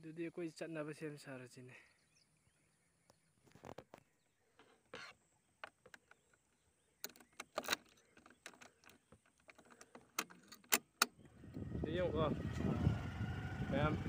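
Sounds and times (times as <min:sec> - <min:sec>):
key clicking in a lock: 0:07.0 - 0:11.1.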